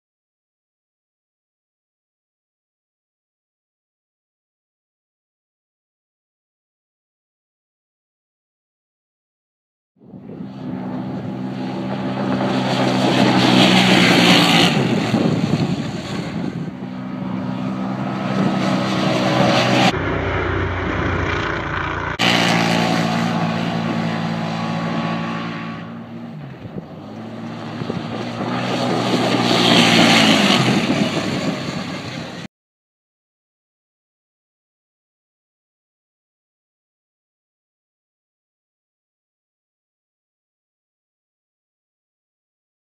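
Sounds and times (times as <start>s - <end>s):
off-road vehicle engine revving: 10.3s - 32.5s
low rumble: 19.0s - 24.2s.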